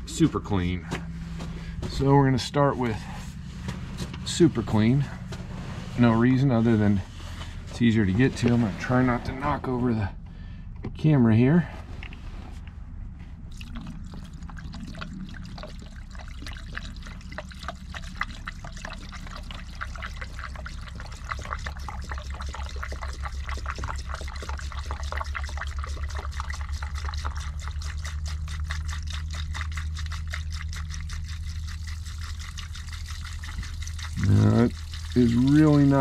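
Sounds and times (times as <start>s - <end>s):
liquid glugging from a jug: 13.5s - 36.0s.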